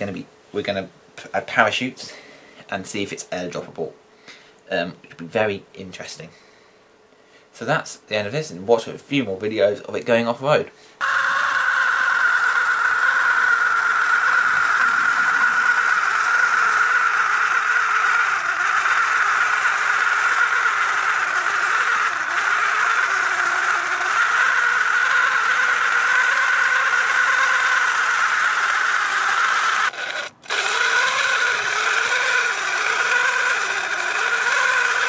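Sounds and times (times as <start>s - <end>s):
electric motor and gearing whining: 11.0s - 35.0s.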